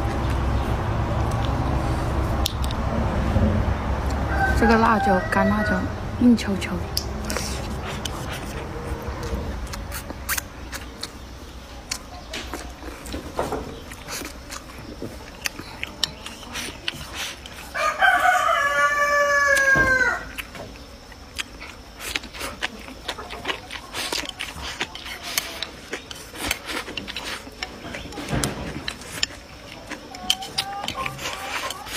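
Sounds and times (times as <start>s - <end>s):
soft clicks and chewing: 1.2s - 1.6s, 2.4s - 2.8s, 6.9s - 18.4s, 20.3s - 31.9s
rooster crowing: 4.1s - 6.0s, 17.7s - 20.4s.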